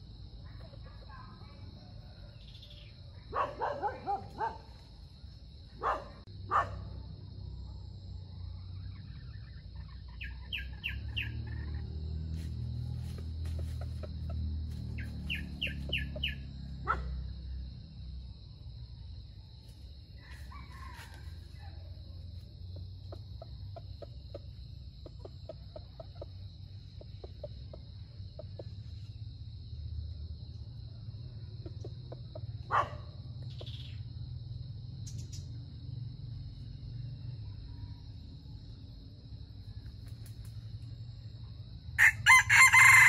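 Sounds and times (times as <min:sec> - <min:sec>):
junglefowl call: 0:42.0 - 0:43.0.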